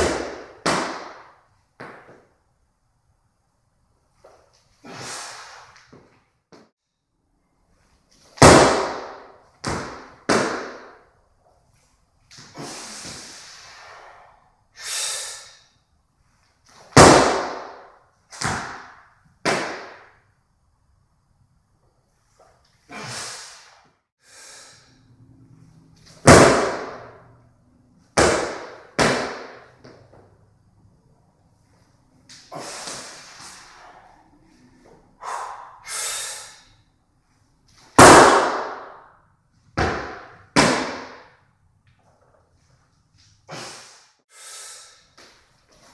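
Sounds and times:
hard exhale: 4.8 - 5.8, 12.5 - 15.8, 22.9 - 25.2, 32.4 - 36.8, 43.5 - 45.2
sharp breath: 4.8 - 5.8, 12.5 - 15.8, 22.9 - 25.2, 32.3 - 36.8, 43.5 - 45.2.

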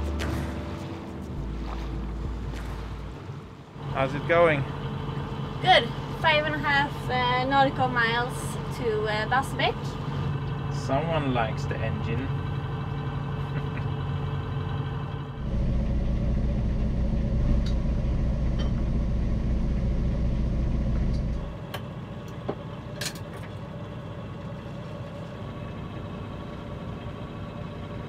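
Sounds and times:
diesel engine rumble: 0.0 - 28.0.

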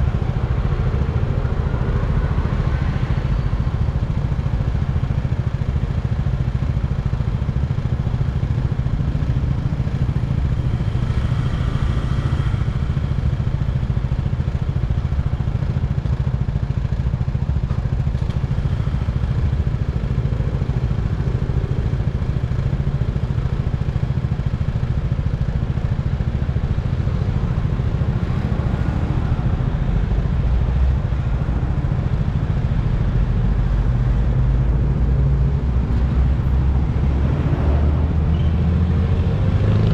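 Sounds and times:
motorbike engine droning: 8.2 - 16.5.

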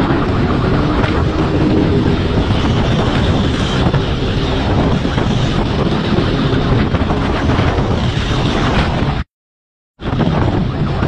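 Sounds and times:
wind rushing over microphone: 0.0 - 9.3, 10.0 - 11.0.

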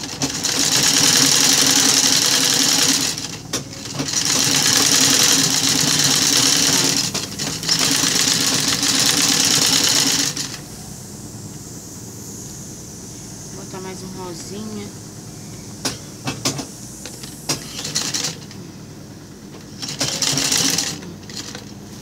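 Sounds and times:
sewing machine stitching: 0.0 - 10.6, 16.3 - 18.6, 19.6 - 21.8.

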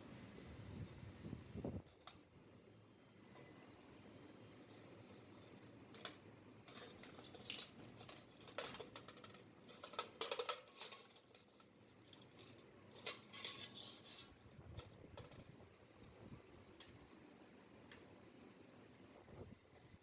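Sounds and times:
small parts clicking and scraping: 5.2 - 17.2.

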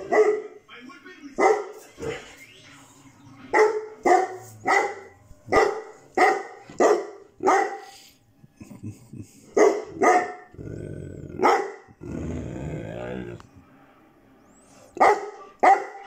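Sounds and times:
dog barking: 0.0 - 0.6, 1.4 - 1.8, 3.5 - 8.0, 9.5 - 10.5, 11.4 - 11.9, 15.0 - 16.0
dog growling: 10.5 - 13.6.

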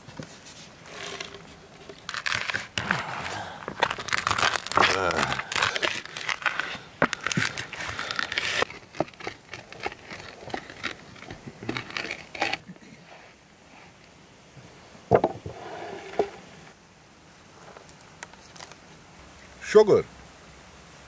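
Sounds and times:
nuts crunching under stone: 1.9 - 12.7
sharp knock on wooden tray: 15.1 - 15.5.

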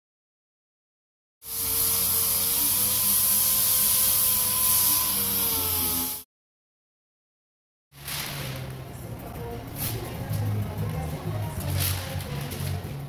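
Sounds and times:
pneumatic orbital sander whining: 1.5 - 6.2.

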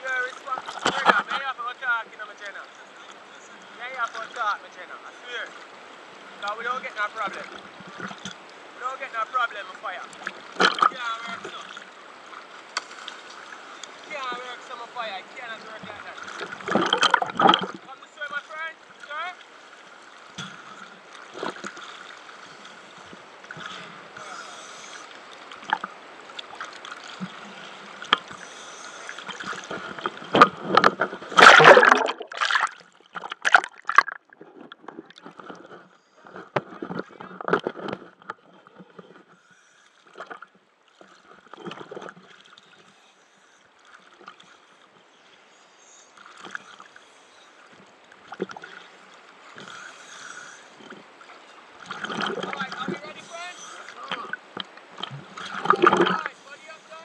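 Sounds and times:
water sloshing and gurgling: 0.0 - 57.0
loud splashing: 31.3 - 34.4.

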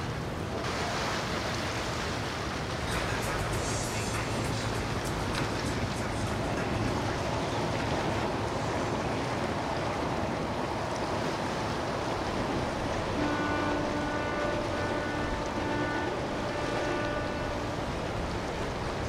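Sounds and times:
boat engines rushing: 0.0 - 19.0
water rushing: 0.0 - 19.0.

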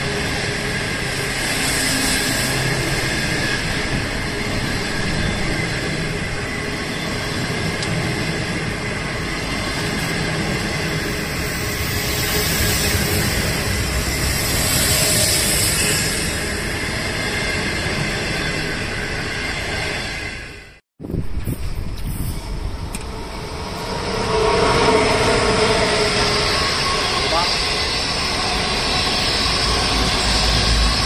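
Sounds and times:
train wheels rumbling on rail: 0.0 - 31.0.

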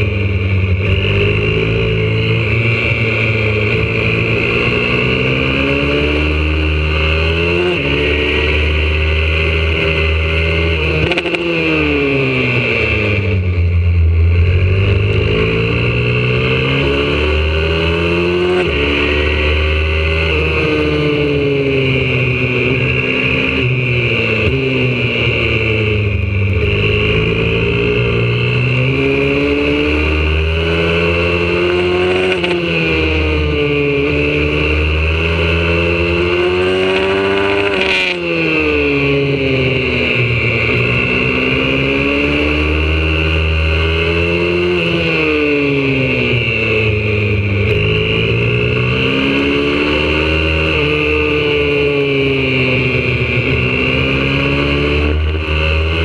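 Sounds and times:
motorbike engine accelerating: 0.0 - 56.0.

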